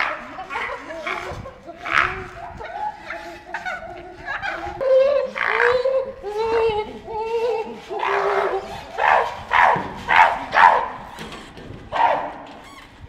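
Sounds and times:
chimpanzee bark-like calls: 0.0 - 3.8, 4.4 - 6.7, 7.6 - 11.2, 11.9 - 12.5
chimpanzee hoots: 0.0 - 11.1.

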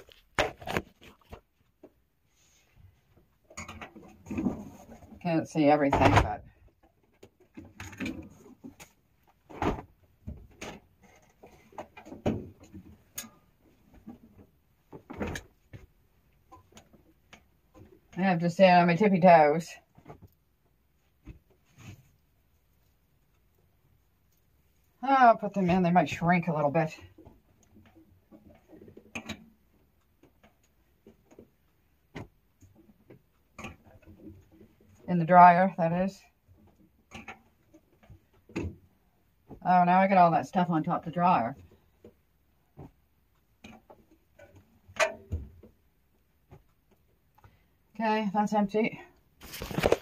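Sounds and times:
cloth rustling: 49.4 - 50.0.

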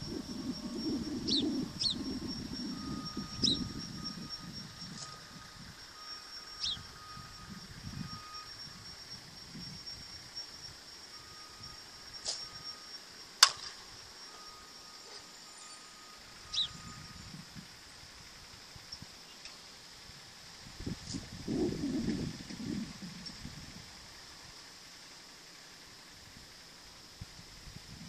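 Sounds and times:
high insect buzz: 0.0 - 28.0
bird chirps: 0.6 - 8.6, 14.3 - 17.4
softball bat crack: 13.4 - 13.8.

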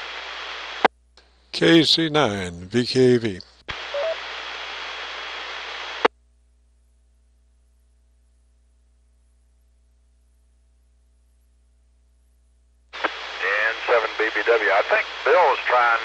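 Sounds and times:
radio receiver hiss: 0.0 - 2.0, 3.0 - 6.1, 13.0 - 16.0
faint mains hum: 0.0 - 16.0.

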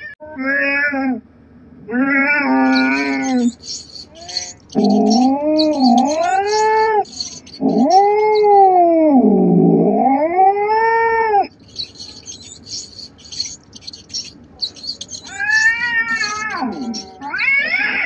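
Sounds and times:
cat yowling: 2.0 - 9.0, 11.8 - 18.0.

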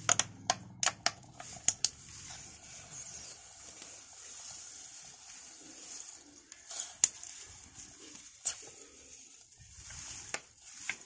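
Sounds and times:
plastic crackling: 0.0 - 11.0.

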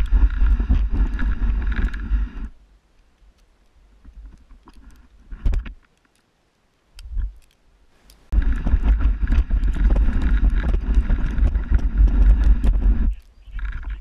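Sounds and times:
sled scraping over snow: 0.0 - 2.6, 8.3 - 14.0.

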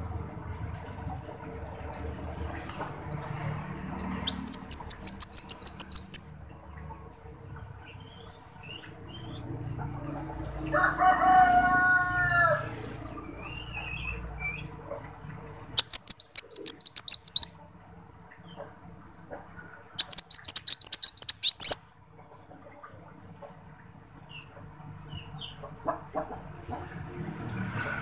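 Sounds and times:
low drawn-out bird call: 4.3 - 6.3, 15.8 - 17.5, 20.0 - 21.9
sunbird twittering: 4.3 - 6.3, 15.8 - 17.5, 20.0 - 21.9.

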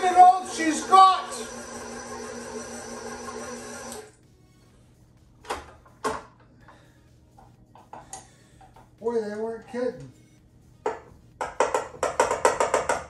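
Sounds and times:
stand mixer motor hum: 0.0 - 4.1.

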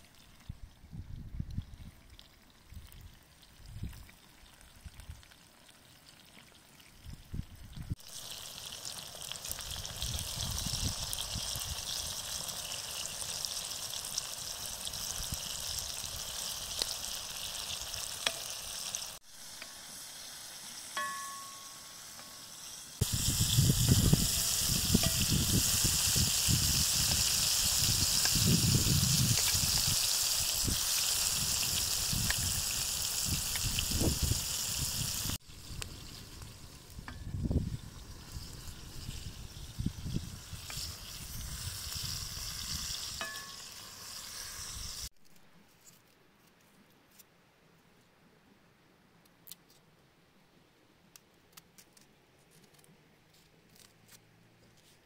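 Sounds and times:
vegetables sizzling in oil: 7.9 - 45.1.

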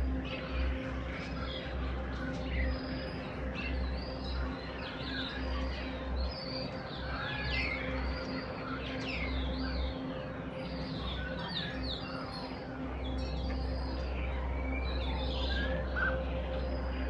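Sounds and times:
starlings chirping and whistling: 1.2 - 17.0.

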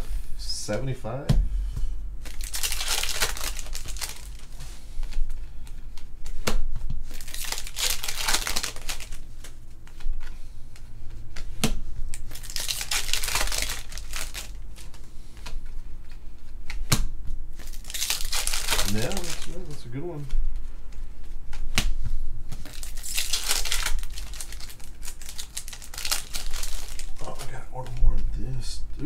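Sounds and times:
foil wrappers crinkling and tearing: 2.2 - 5.3, 7.1 - 9.6, 12.1 - 15.0, 17.6 - 19.8, 22.6 - 28.0.

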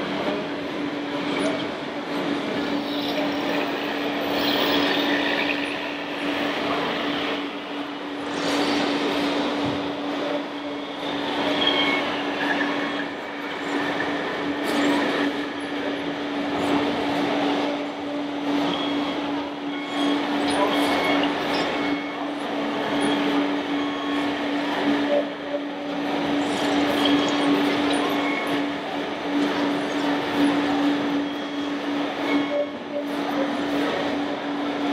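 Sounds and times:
steady low drone: 0.0 - 17.3.

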